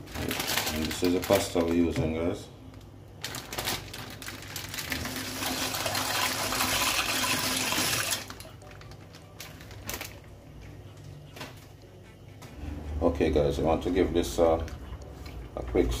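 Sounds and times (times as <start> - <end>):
dry pasta pouring into water: 4.2 - 8.4.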